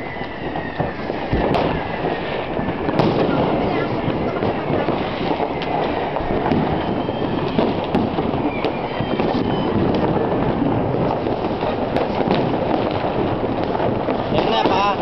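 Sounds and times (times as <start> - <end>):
firecrackers crackling and popping: 0.0 - 15.0
firework whistles: 0.0 - 15.0.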